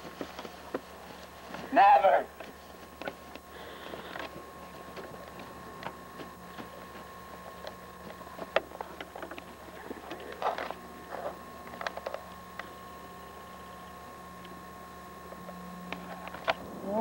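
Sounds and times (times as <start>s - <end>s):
scuffling rustles: 0.0s - 11.4s
camera electrical hum: 0.0s - 17.0s.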